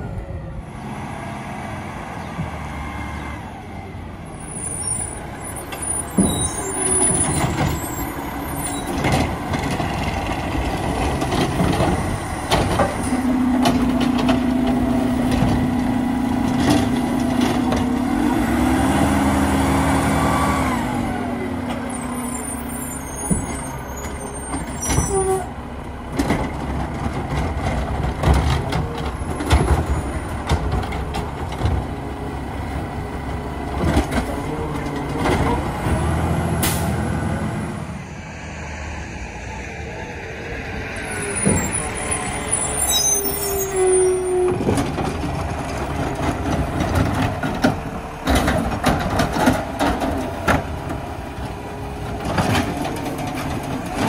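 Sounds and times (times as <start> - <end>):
truck engine and hydraulics humming: 0.0 - 54.0.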